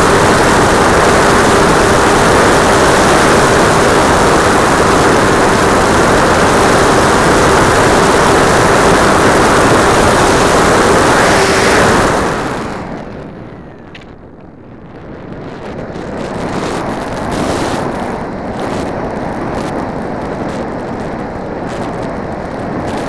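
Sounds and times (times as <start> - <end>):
model plane propeller and motor: 0.0 - 14.0
wind rush on microphone: 0.0 - 23.0.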